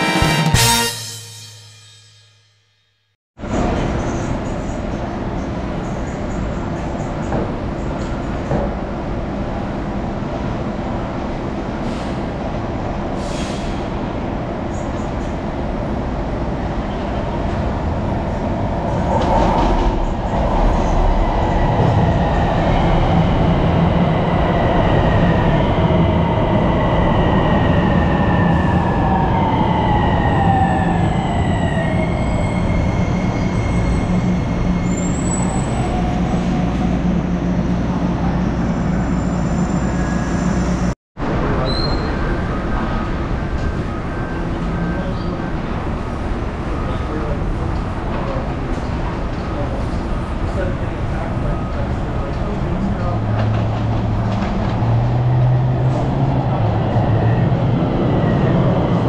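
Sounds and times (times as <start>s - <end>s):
electric train rumbling: 3.4s - 59.0s.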